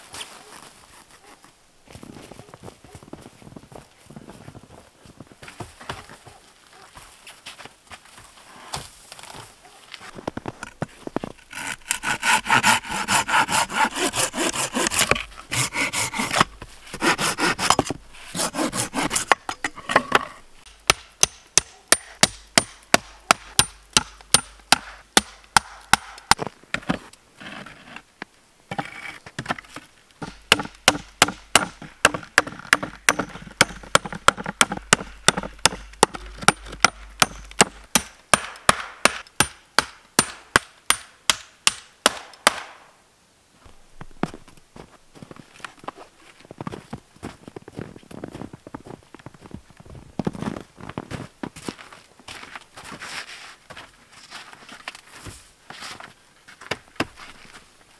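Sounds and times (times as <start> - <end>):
hand saw cutting wood: 11.3 - 19.7.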